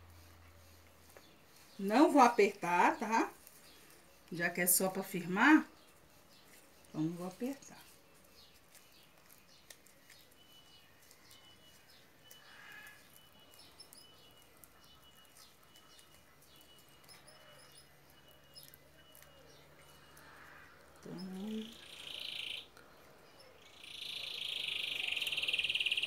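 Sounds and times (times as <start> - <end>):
faint high chirps and ticks: 5.2 - 26.0.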